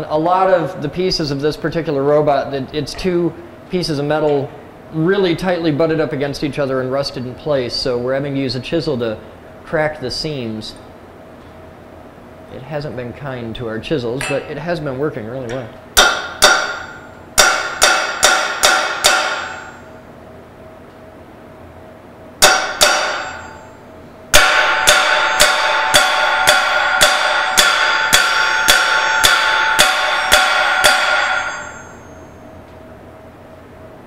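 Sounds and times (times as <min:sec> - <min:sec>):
hammer striking chisel on metal: 0:16.0 - 0:19.9, 0:22.4 - 0:32.4.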